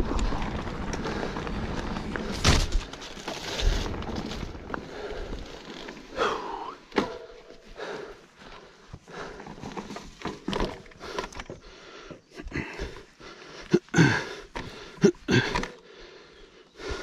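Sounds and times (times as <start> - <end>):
man breathing hard: 4.8 - 9.9, 10.7 - 17.0.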